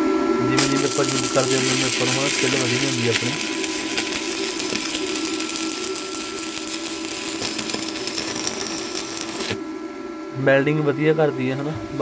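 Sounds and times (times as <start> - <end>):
welding arc crackling: 0.6 - 9.9.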